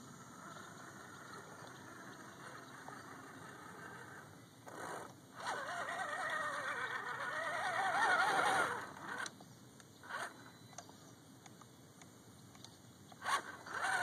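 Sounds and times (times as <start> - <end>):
toy truck electric motor whining: 0.2 - 9.3, 10.0 - 10.4, 13.2 - 14.0.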